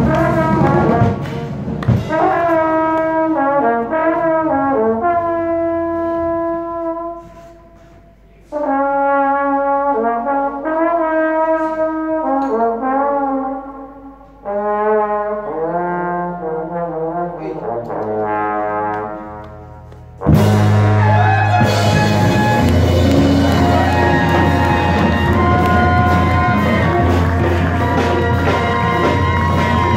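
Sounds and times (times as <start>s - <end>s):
band with drums and bass: 0.0s - 3.3s, 19.8s - 29.9s
horn section playing in harmony: 0.0s - 7.8s, 8.5s - 29.9s.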